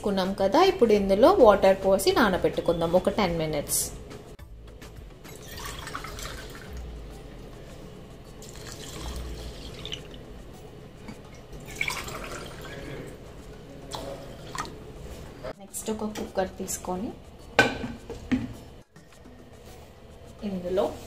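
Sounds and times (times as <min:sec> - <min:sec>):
water pouring into a bowl: 0:05.3 - 0:06.8, 0:08.4 - 0:10.2, 0:11.6 - 0:13.1, 0:13.9 - 0:14.8.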